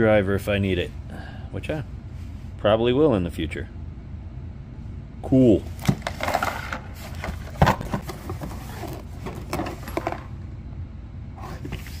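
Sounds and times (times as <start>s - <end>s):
box thump: 5.8s - 10.3s
cardboard box rustling: 5.8s - 10.3s.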